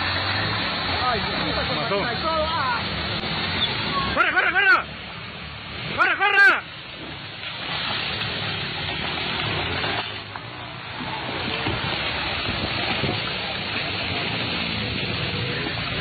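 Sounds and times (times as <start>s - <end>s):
landslide debris roaring downhill: 0.0s - 16.0s.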